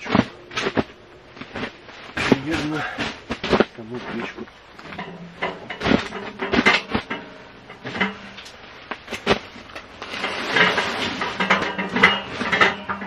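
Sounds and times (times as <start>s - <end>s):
fabric rustling: 5.8s - 12.7s.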